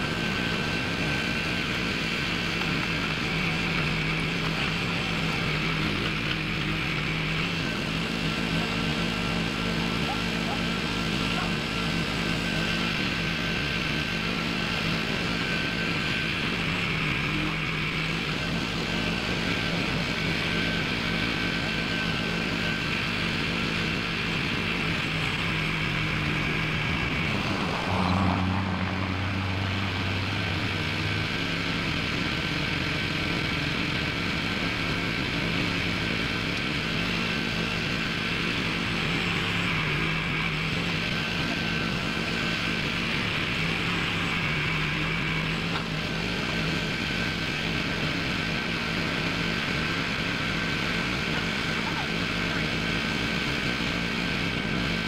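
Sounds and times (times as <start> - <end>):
rising whine: 0.0 - 55.0
small gas engine running under load: 0.0 - 55.0.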